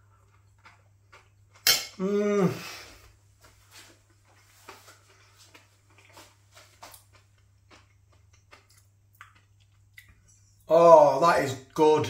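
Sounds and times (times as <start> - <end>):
chewing food: 0.0 - 1.6, 3.8 - 10.7
low steady hum: 0.0 - 12.0
mouth clicks and smacks: 5.6 - 10.4.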